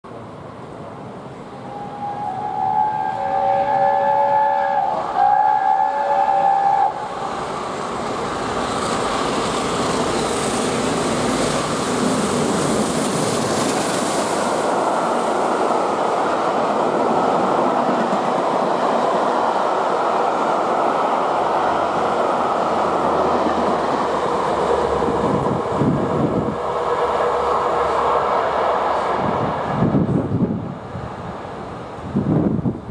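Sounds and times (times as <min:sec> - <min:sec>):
steam train passing at speed: 0:00.1 - 0:32.9
steam whistle: 0:01.6 - 0:07.0.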